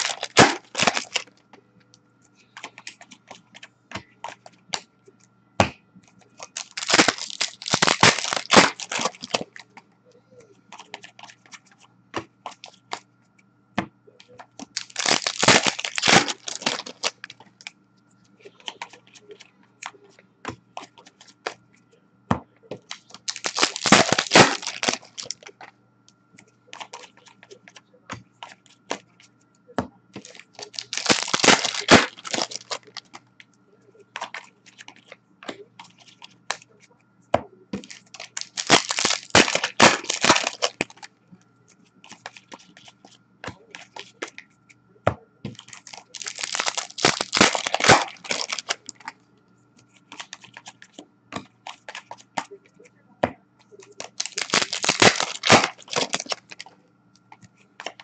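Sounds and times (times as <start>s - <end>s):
card pack wrappers tearing: 0.0s - 1.3s, 6.4s - 9.6s, 14.6s - 17.4s, 22.9s - 25.5s, 30.2s - 33.1s, 37.8s - 41.1s, 45.6s - 49.1s, 53.8s - 56.7s
cards clicking and flicking: 0.0s - 1.3s, 6.4s - 9.6s, 14.6s - 17.5s, 22.8s - 25.5s, 30.2s - 33.2s, 37.7s - 41.1s, 45.4s - 49.2s, 53.8s - 56.7s.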